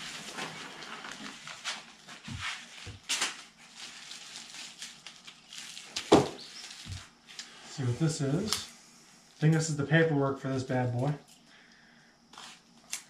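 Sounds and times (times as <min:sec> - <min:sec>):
packing material rustling: 0:00.0 - 0:08.6.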